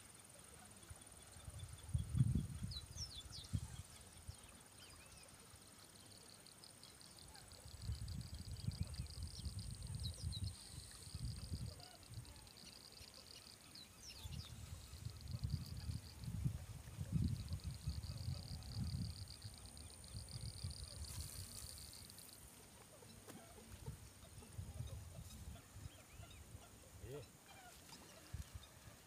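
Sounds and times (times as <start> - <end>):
wind rumbling on microphone: 1.5 - 3.8, 7.7 - 12.3, 14.2 - 22.2.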